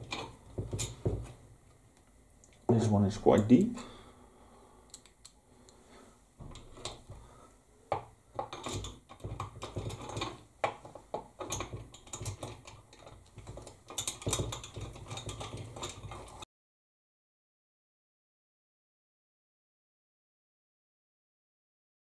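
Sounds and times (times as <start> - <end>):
metallic clicks and scraping: 0.0 - 1.4, 6.4 - 7.1, 8.4 - 16.4.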